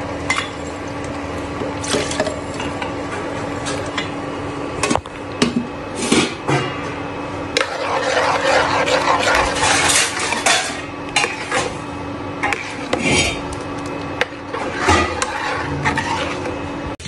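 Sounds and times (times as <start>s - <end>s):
steady hum: 0.0s - 17.0s
metal spoon scraping a pan: 7.6s - 11.8s, 12.4s - 13.5s, 14.2s - 16.6s.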